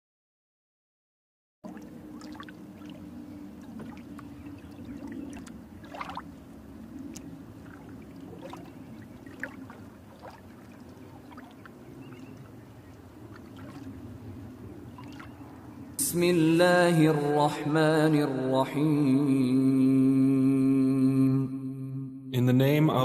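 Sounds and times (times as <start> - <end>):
small splashes and clicks: 1.7 - 14.1, 14.9 - 15.4.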